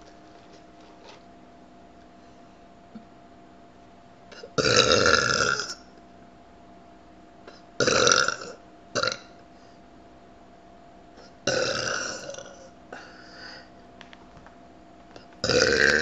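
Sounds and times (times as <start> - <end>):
woman burping loudly: 4.4 - 5.8, 7.8 - 9.3, 11.4 - 12.7, 15.4 - 16.0.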